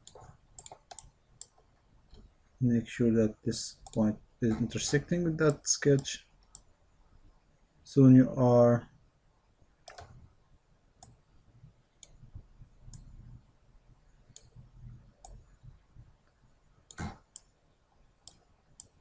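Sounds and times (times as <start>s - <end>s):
computer mouse clicks: 0.0s - 2.2s, 3.8s - 6.7s, 9.8s - 10.2s, 12.0s - 12.2s, 12.9s - 13.1s, 14.3s - 14.6s, 18.2s - 19.0s.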